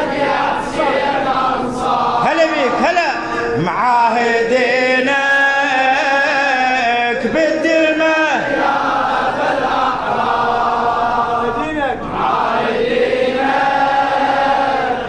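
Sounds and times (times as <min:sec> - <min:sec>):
men chanting in echoing hall: 0:00.0 - 0:15.0.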